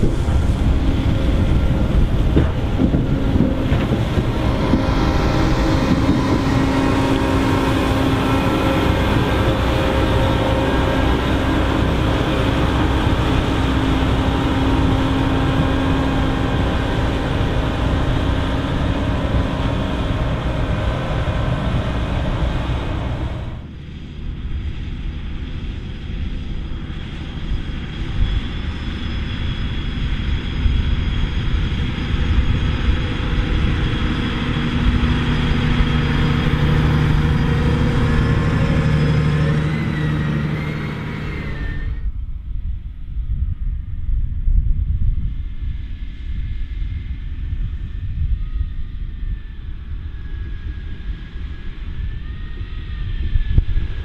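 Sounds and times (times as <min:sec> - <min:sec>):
harvester machine noise: 0:00.0 - 0:42.0
tractor engine rumble: 0:00.0 - 0:42.2.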